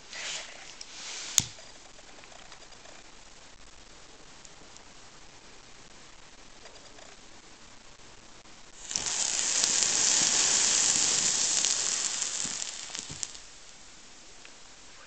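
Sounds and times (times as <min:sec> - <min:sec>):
crackles: 0:00.0 - 0:15.0
gunpowder burning with loud hiss: 0:00.9 - 0:01.8, 0:08.7 - 0:14.3.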